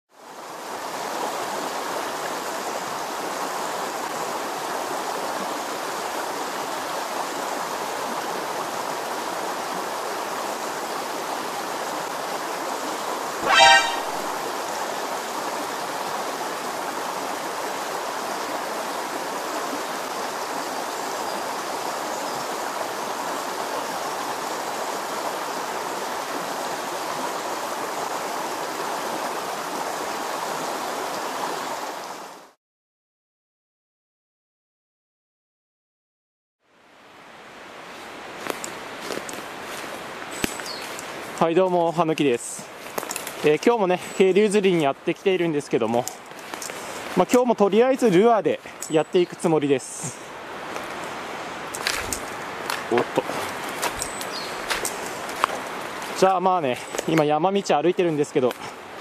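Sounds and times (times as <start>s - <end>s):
stream water flowing: 0.1s - 32.6s, 36.6s - 59.0s
short pitched sound: 13.4s - 14.4s.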